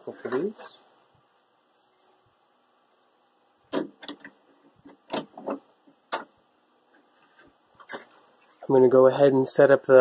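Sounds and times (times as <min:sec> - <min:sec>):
plastic parts clicking and knocking: 0:03.7 - 0:06.4.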